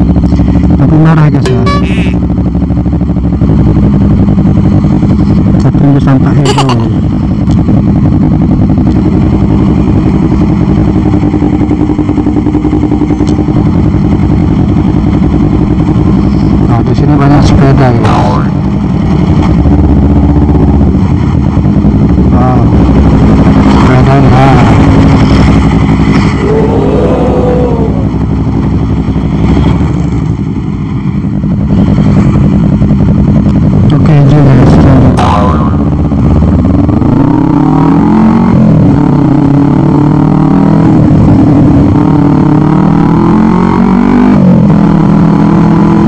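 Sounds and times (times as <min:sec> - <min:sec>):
motorcycle engine at low revs: 0:00.0 - 0:46.0
wavering vehicle whine: 0:00.0 - 0:46.0.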